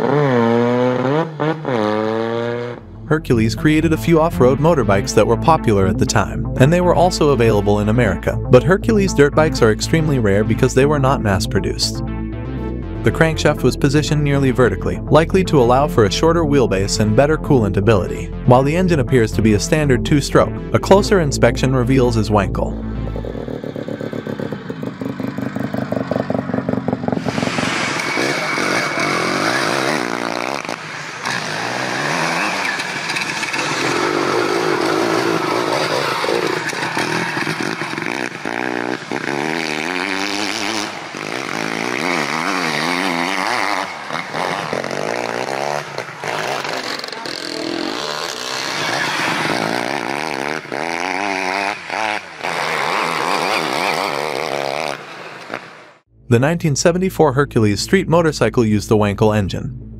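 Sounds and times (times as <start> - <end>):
dirt bike engines revving: 0.0 - 11.1, 22.1 - 55.8.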